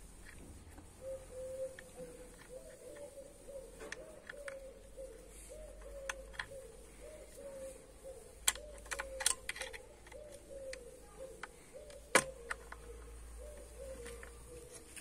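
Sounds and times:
bird cooing: 0.8 - 15.0
clicks and taps of tools: 3.8 - 4.7.

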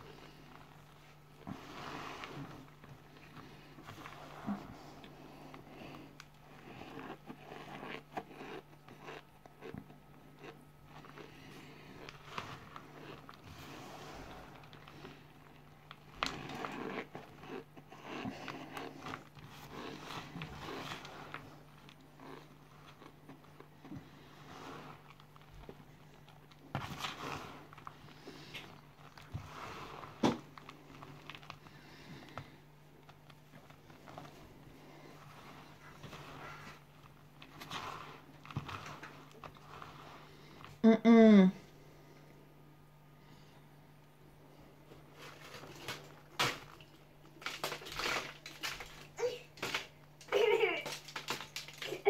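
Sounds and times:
soft scraping of powder: 0.0 - 9.2, 11.0 - 23.0, 24.0 - 25.8, 26.7 - 40.7
crunching and crackling chewing: 0.0 - 40.8, 44.1 - 52.0
cornstarch crunching between fingers: 6.2 - 13.4.

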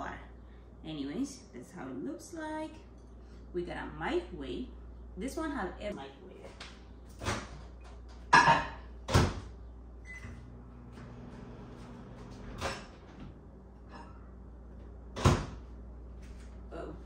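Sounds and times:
microwave oven humming: 2.5 - 17.0
microwave door banging shut: 8.4 - 9.5, 15.2 - 15.6
microwave beep: 10.0 - 10.5.

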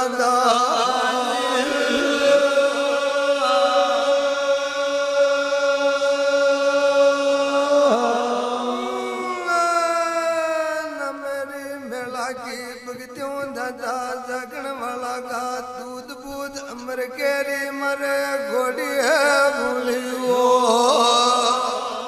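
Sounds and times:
person chanting held notes: 0.0 - 12.6.

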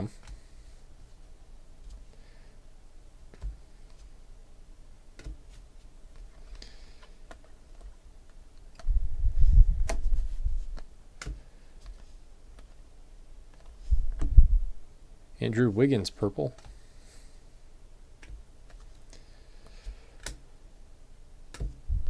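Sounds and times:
cards being flipped and shuffled: 9.8 - 12.8.

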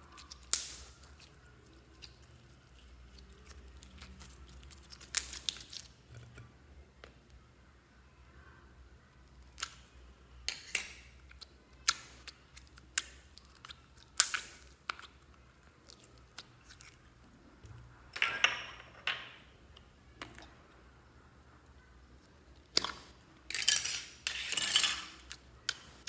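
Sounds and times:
slime clicking and crackling: 0.0 - 6.4, 9.3 - 17.2, 22.2 - 23.5.

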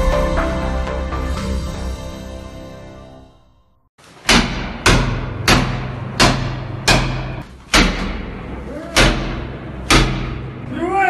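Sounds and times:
heavy blows on a door: 4.2 - 10.7.

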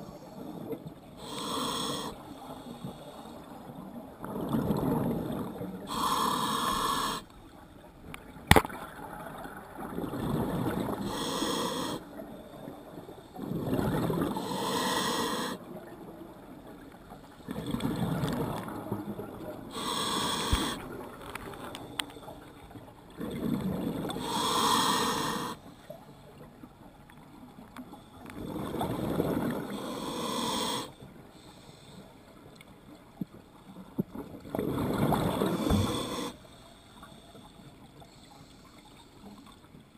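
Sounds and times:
exhaled bubbles underwater: 4.0 - 6.1, 8.2 - 12.4, 13.4 - 21.2, 23.1 - 24.2, 28.4 - 29.8, 34.1 - 36.3
regulator inhalations: 14.4 - 15.6, 19.7 - 20.8, 24.2 - 25.6.

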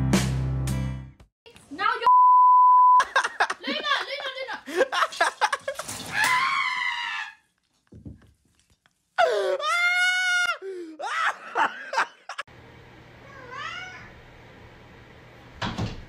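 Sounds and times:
excited shouting: 3.4 - 5.3, 9.5 - 12.1
person screaming: 6.1 - 7.4, 9.2 - 11.6.

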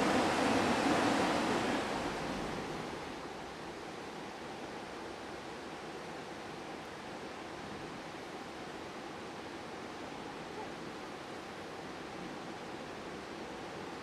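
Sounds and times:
creek water rushing over rocks: 0.0 - 4.8.

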